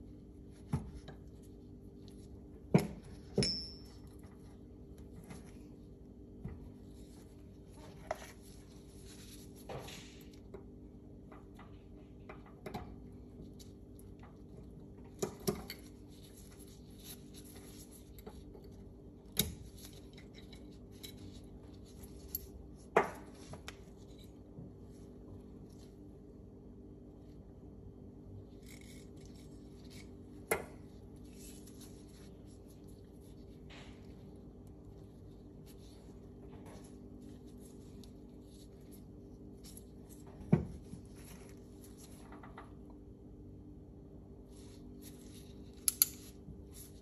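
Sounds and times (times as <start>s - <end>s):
gloved hands rustling: 15.9s - 26.5s, 29.0s - 42.9s.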